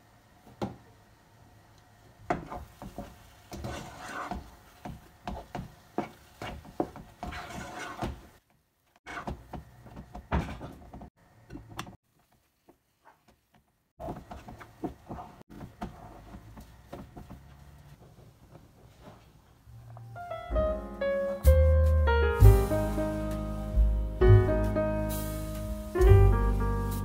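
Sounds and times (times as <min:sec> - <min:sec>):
wooden spoon scraping a pan: 0:02.4 - 0:04.7, 0:06.0 - 0:08.4.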